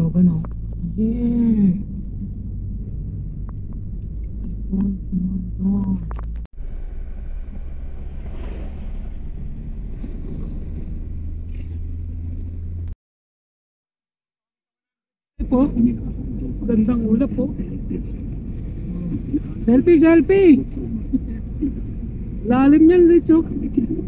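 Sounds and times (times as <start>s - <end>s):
car engine and tyres from cabin: 0.0s - 13.0s.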